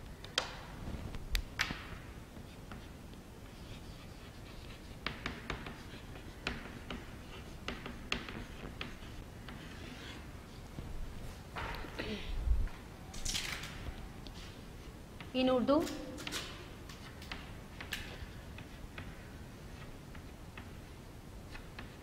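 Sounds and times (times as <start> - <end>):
chalk tapping and scratching on chalkboard: 2.2 - 10.9, 16.2 - 22.0.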